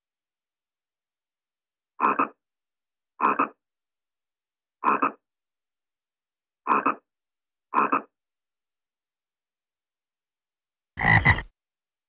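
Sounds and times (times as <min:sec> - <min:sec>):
frog croaking: 0:02.0 - 0:02.4, 0:03.2 - 0:03.6, 0:04.8 - 0:05.3, 0:06.6 - 0:07.1, 0:07.7 - 0:08.2, 0:11.0 - 0:11.5.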